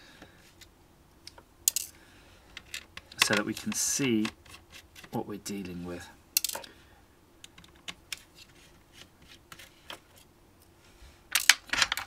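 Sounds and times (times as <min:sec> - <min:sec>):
fingers clicking on plastic case: 0:02.6 - 0:05.2.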